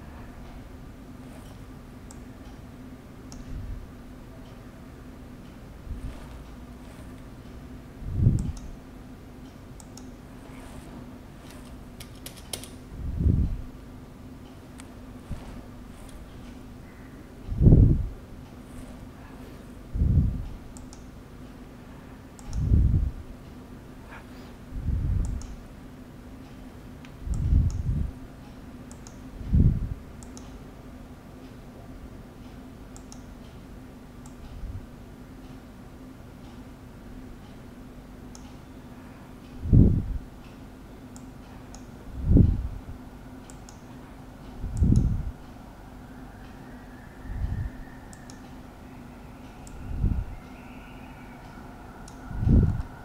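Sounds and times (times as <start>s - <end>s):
steady low hum: 0.0s - 53.0s
computer mouse clicking: 5.4s - 7.6s, 8.2s - 8.8s, 9.4s - 12.8s, 14.5s - 17.0s, 18.4s - 19.7s, 20.7s - 21.1s, 22.3s - 22.8s, 25.2s - 25.6s, 28.8s - 29.3s, 30.2s - 30.6s, 32.4s - 33.5s, 43.4s - 45.6s, 48.1s - 48.6s
keyboard and mouse clicks: 8.2s - 8.8s, 9.5s - 12.8s, 20.7s - 21.1s, 28.9s - 29.2s, 44.7s - 45.2s.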